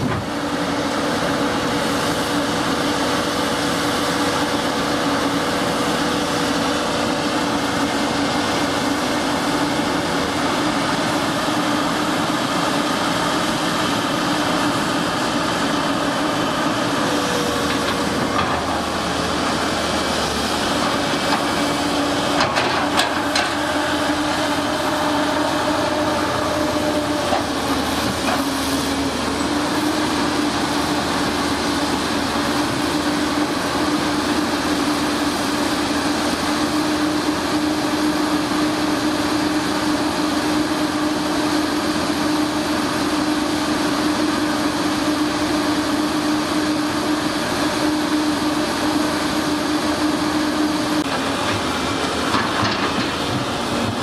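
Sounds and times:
excavator diesel engine: 0.0s - 54.0s.

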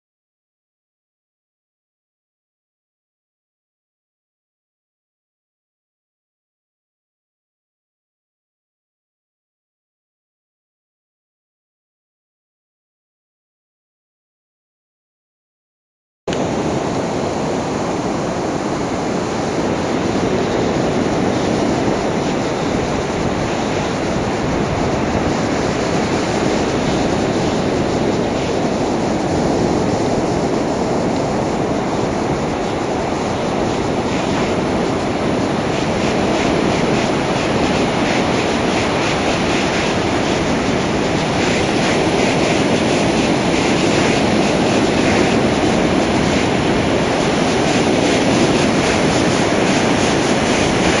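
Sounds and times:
ocean surf breaking on beach: 16.3s - 51.0s.

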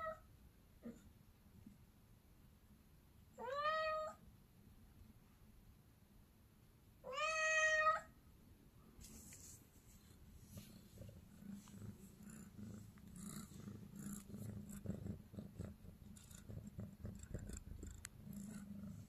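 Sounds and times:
soft clicks and rustles: 9.0s - 13.2s
cat purring: 9.1s - 19.0s.

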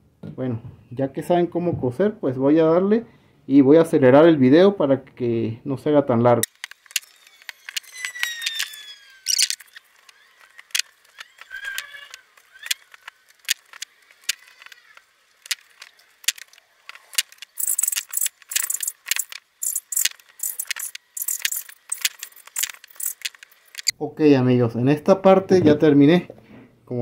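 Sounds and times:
awl piercing leather clicks: 6.4s - 23.9s.

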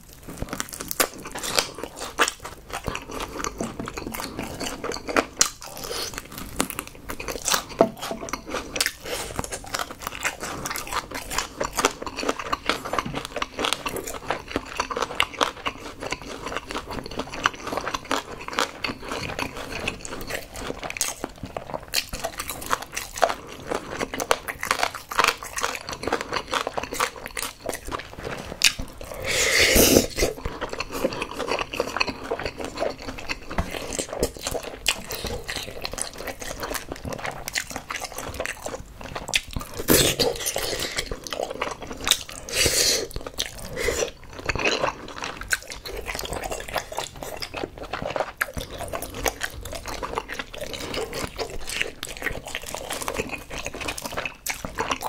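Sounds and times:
crunchy chewing of fried chicken: 0.0s - 55.0s.

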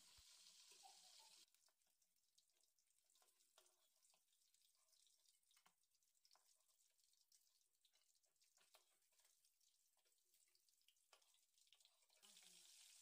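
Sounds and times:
fish frying in oil crackling: 0.0s - 13.0s.

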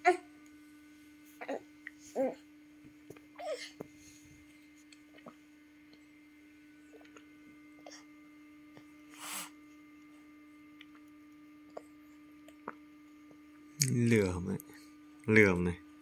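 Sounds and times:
low electrical hum: 0.0s - 16.0s
short breathy puff: 9.1s - 9.5s.

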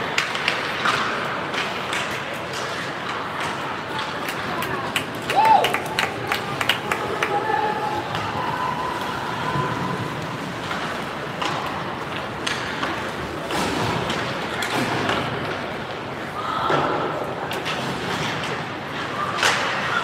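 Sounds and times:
hockey sticks and pucks knocking: 0.0s - 8.4s, 9.8s - 20.0s.

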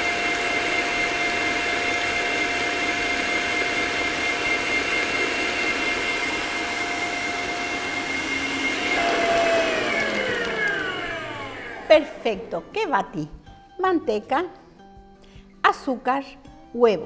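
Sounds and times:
electric stand mixer whine: 0.0s - 12.8s.

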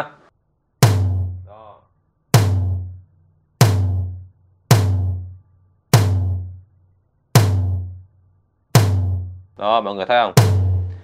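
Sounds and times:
tom drum hits: 0.8s - 1.5s, 2.3s - 3.0s, 3.6s - 6.6s, 7.4s - 8.0s, 8.8s - 9.5s, 10.4s - 11.0s.

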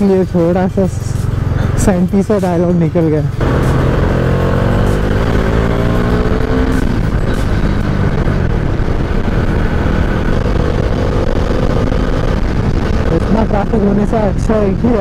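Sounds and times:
motorcycle engine: 0.0s - 15.0s
wind rush on microphone: 5.9s - 15.0s.

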